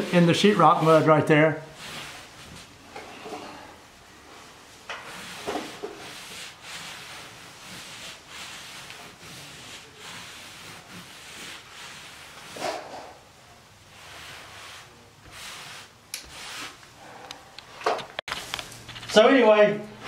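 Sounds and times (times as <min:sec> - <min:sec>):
cloth rubbing on drywall: 0:00.0 - 0:17.2.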